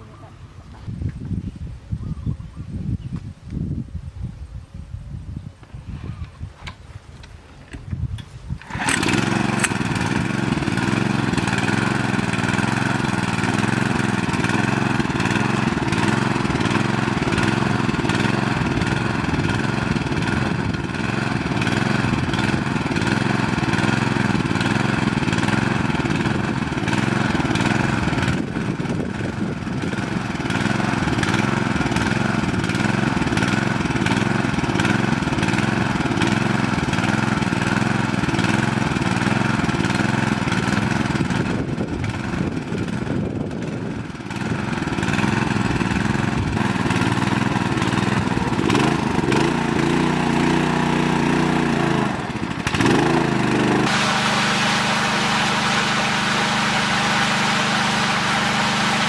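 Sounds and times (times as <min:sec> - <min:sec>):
small petrol engine running: 0:08.6 - 0:59.0.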